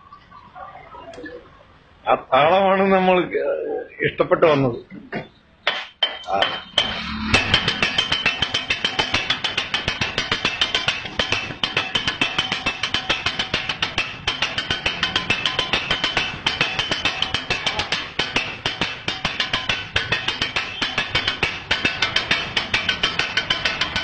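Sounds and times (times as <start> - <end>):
metal spatulas clattering on griddle: 5.7 - 24.0.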